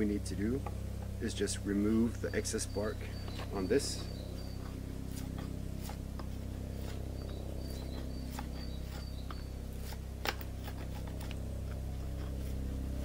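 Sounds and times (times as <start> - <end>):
steady low hum: 0.0 - 13.0
knife scraping bark: 2.6 - 13.0.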